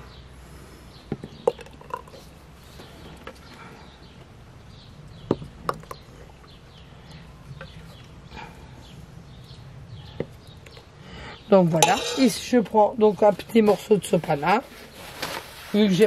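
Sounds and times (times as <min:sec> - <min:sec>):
ladle clinking on pot and jar: 0:11.8 - 0:12.5.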